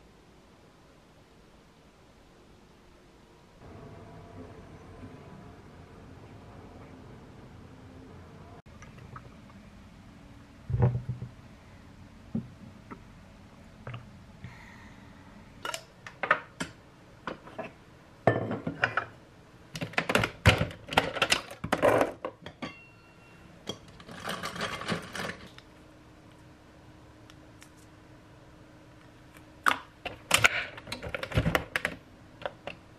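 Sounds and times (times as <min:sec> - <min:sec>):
clinks of mug and glass: 0:22.5 - 0:23.1
rustling clatter: 0:23.9 - 0:25.6.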